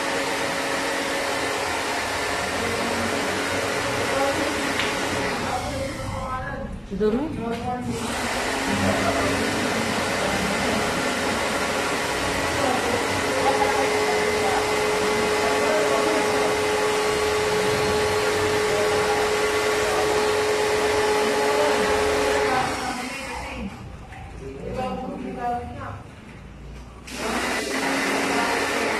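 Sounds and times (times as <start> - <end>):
pressure washer spraying water: 0.0 - 6.1, 7.9 - 23.2, 27.1 - 28.9
steady whine: 8.3 - 20.2.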